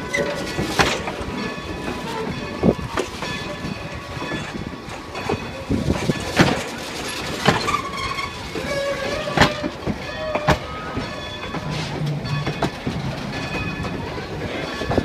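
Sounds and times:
clanks and knocks of train cars: 0:00.0 - 0:15.0
train rolling slowly: 0:00.0 - 0:15.0.

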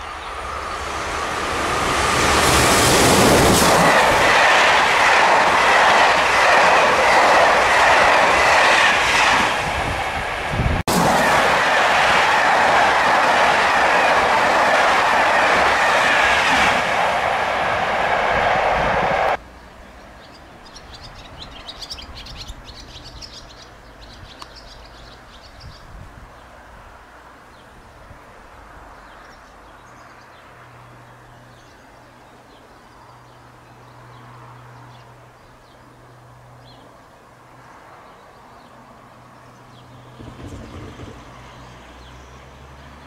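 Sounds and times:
small birds chirping: 0:19.8 - 0:26.5.

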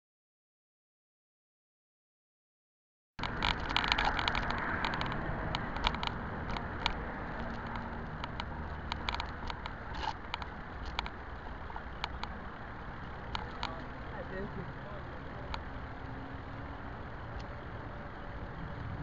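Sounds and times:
sharp clicks and rattles: 0:03.2 - 0:15.8
wind and tyre rumble: 0:03.2 - 0:19.0.

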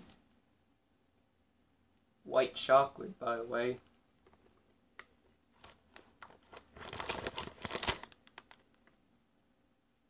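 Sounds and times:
plastic wrappers crinkling: 0:03.8 - 0:09.0.

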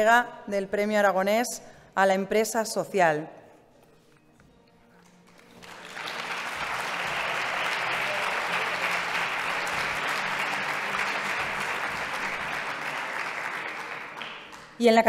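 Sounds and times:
audience applauding: 0:05.3 - 0:14.8.

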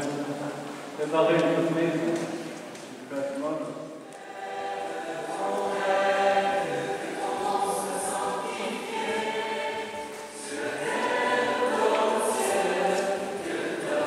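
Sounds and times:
group singing religious song: 0:04.0 - 0:14.0.

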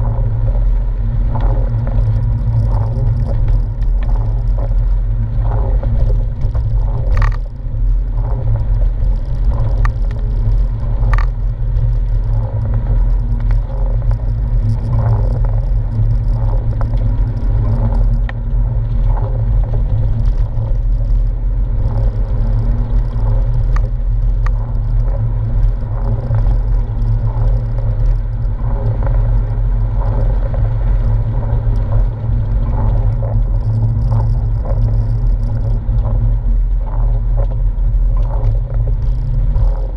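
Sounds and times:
car engine drone from cabin: 0:00.0 - 0:39.9.

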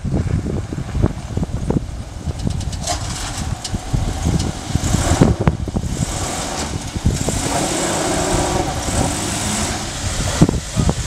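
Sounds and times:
car engine running low: 0:00.0 - 0:11.0
tyres rolling over gravel: 0:02.2 - 0:10.4.

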